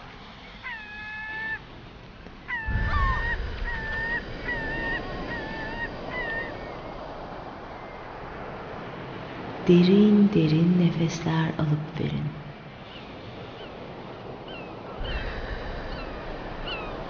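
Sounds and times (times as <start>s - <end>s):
gulls calling: 0.0s - 9.5s, 12.6s - 17.0s
steady background hiss: 0.0s - 17.0s
low rumble: 2.3s - 10.6s.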